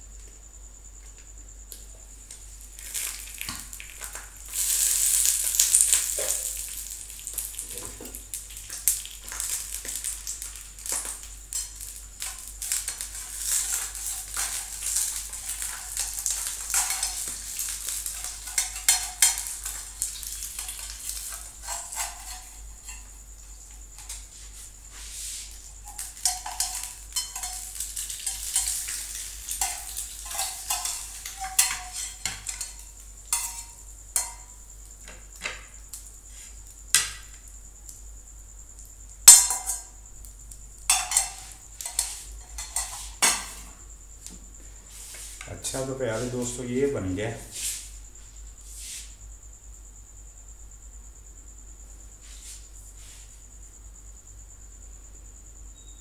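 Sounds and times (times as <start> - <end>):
egg sizzling in oil: 2.2 - 38.1, 38.7 - 44.0
metal spatula scraping pan: 12.9 - 19.8, 20.5 - 23.1, 25.8 - 34.4.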